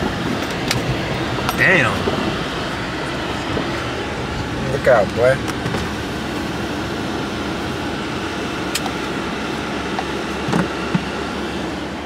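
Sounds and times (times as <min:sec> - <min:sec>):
car engine and road noise: 0:00.0 - 0:12.0.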